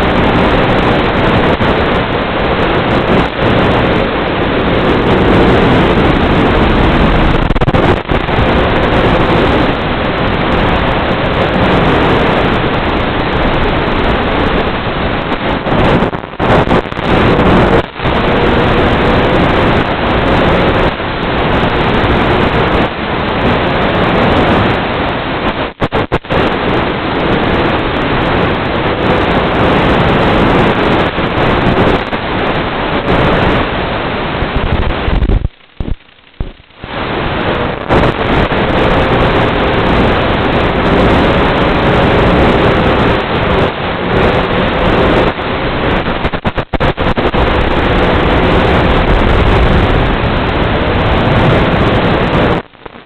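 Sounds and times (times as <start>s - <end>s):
radio link rushing hiss: 25.3s - 27.8s, 34.4s - 53.0s.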